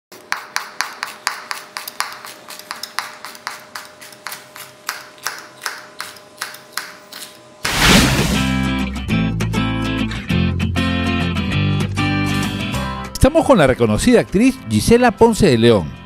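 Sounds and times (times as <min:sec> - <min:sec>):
knife chopping on cutting board: 0:00.2 - 0:07.2
loud whoosh: 0:07.6 - 0:08.8.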